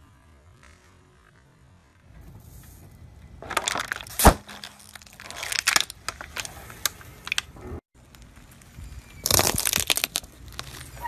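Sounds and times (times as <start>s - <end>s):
plastic bottle bursting: 3.4s - 6.5s
plastic bottle crackling: 3.4s - 7.5s, 9.2s - 11.0s.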